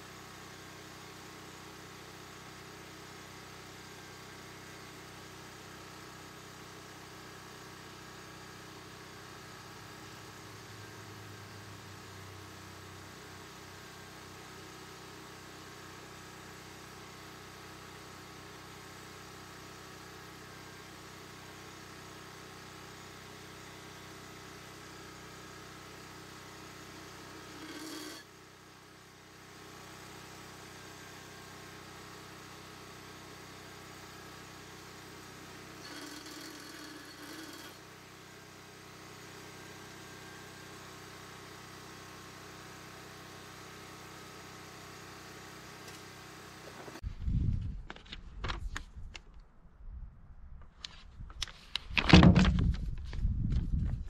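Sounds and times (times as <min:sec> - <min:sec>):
drill press motor hum: 0:26.2 - 0:28.4, 0:35.3 - 0:38.3
drill bit rasping through metal: 0:27.2 - 0:28.3, 0:35.7 - 0:37.8.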